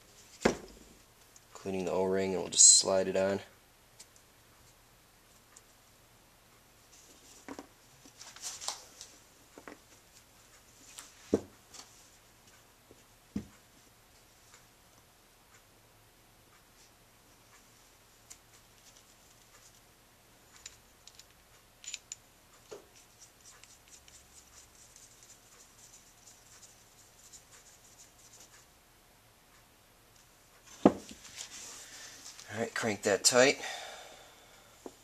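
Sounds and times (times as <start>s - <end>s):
small metal parts clicking: 20.5s - 22.8s.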